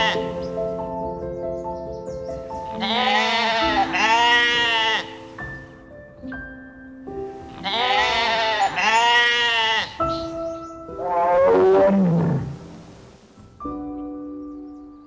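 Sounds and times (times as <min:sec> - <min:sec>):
background music: 0:00.0 - 0:15.0
animal calling: 0:07.6 - 0:12.9.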